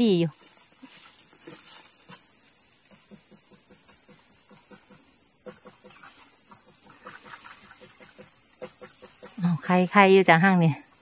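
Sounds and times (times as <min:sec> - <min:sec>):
high-pitched insect drone: 0:00.0 - 0:11.0.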